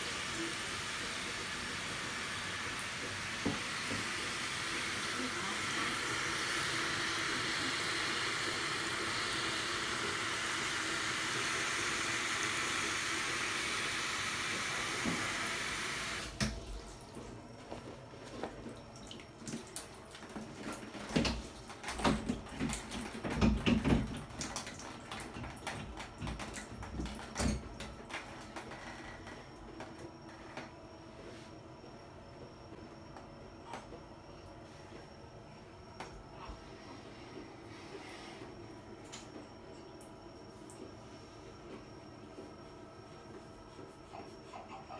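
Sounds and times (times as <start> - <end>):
water running from shower hose: 0.0 - 16.6.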